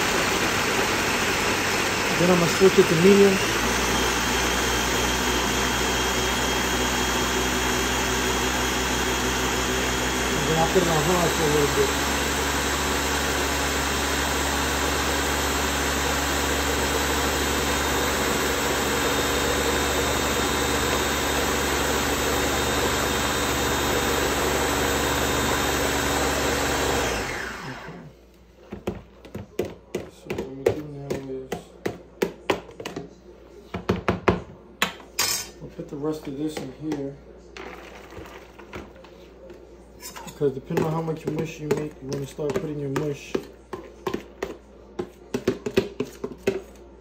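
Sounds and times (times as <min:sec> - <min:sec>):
blender running: 0:00.0 - 0:28.1, 0:40.4 - 0:43.4.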